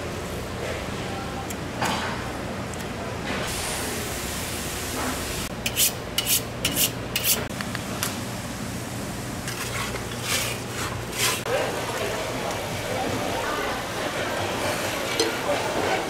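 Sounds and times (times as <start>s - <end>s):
knife scraping on sharpening steel: 5.6s - 7.5s.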